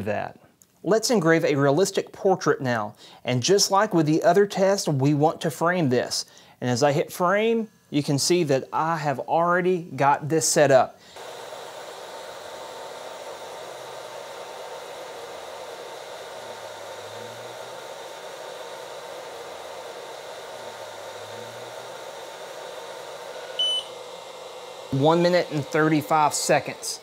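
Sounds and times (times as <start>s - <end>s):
laser engraver fan whir: 5.7s - 27.0s
short beep: 23.5s - 24.0s.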